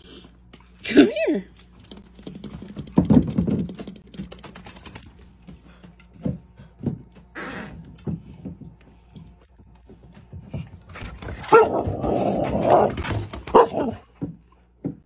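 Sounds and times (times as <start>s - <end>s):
dog grumbling: 11.6s - 13.0s.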